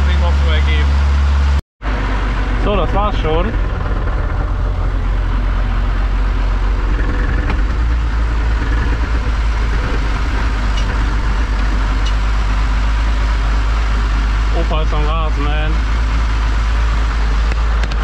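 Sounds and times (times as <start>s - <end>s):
tractor engine droning: 0.0s - 18.0s.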